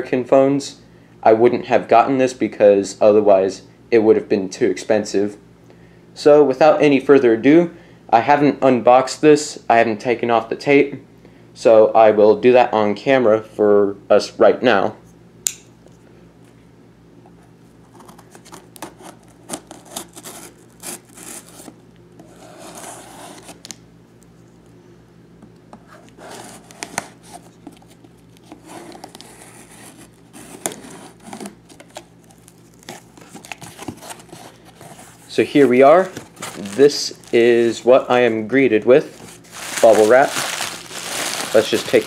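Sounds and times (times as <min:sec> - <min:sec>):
knife cutting packing tape: 0:17.9 - 0:23.8, 0:26.1 - 0:34.6
cardboard rubbing and clicks: 0:25.8 - 0:37.4.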